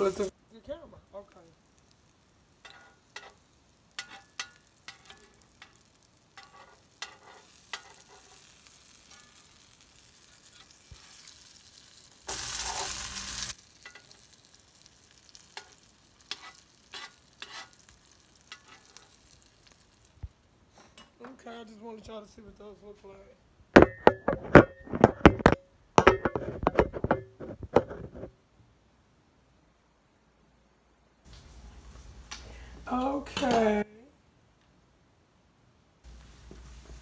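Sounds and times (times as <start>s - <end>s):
patties sizzling in oil: 0.0s - 21.2s, 31.2s - 33.8s, 36.0s - 37.0s.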